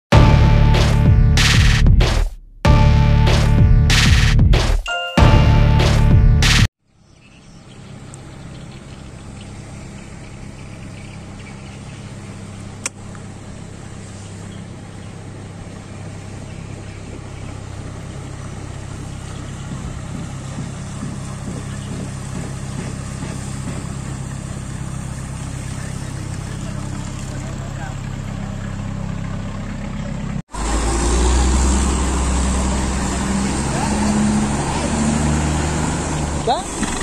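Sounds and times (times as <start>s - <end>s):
boat engine humming: 0.1s - 1.6s, 5.0s - 37.0s
sharp click: 1.4s - 2.4s.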